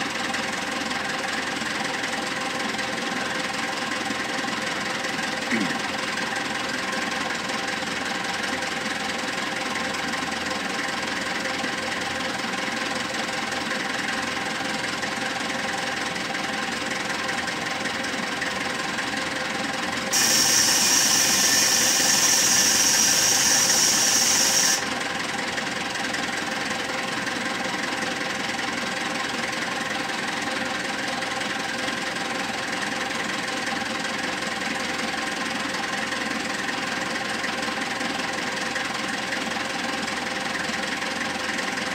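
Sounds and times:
diesel engine running: 0.0s - 41.9s
loud hiss: 20.1s - 24.8s.

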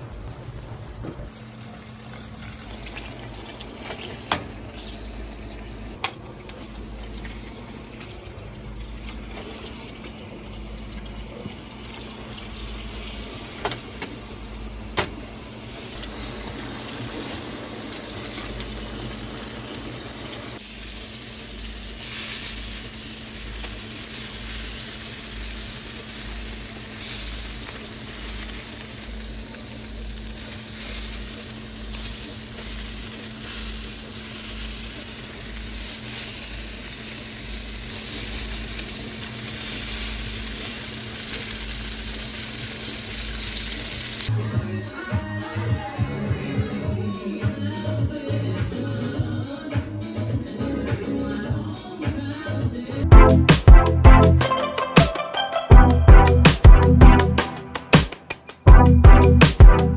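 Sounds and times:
food sizzling in frying pan: 0.2s - 6.0s, 6.6s - 44.3s.

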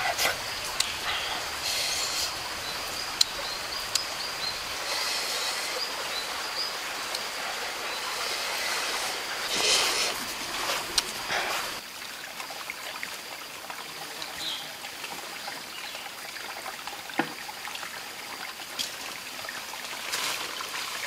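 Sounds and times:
steady high hiss: 0.0s - 11.8s.

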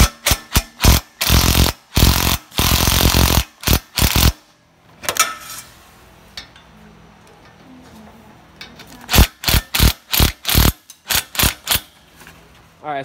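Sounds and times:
power tool bursts: 0.0s - 4.4s, 9.1s - 11.9s.

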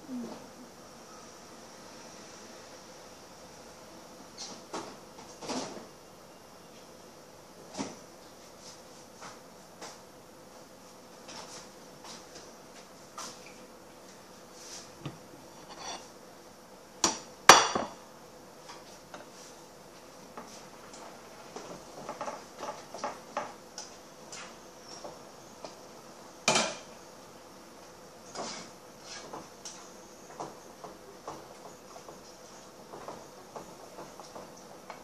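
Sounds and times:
dishes clinking on counter: 15.0s - 16.1s, 17.5s - 18.0s
plate being set down: 15.0s - 16.1s.

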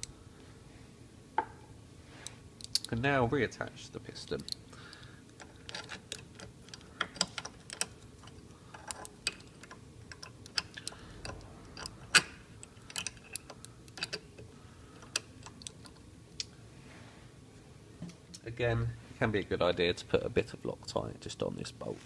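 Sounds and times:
light clicks and taps of hard parts: 2.2s - 3.0s, 4.3s - 16.5s.

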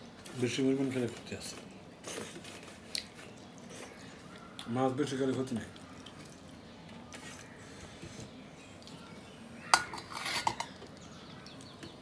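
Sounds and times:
steel bowl clinking on plate: 9.8s - 10.8s.

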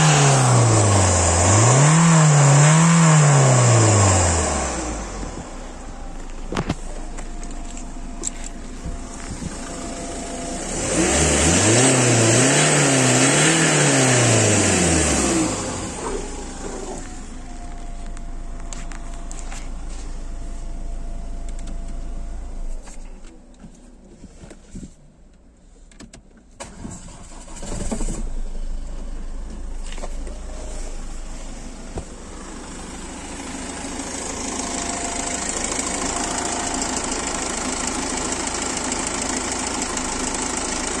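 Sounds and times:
diesel engine idling: 3.6s - 21.4s, 28.3s - 41.0s
engine cranking: 26.6s - 28.3s.

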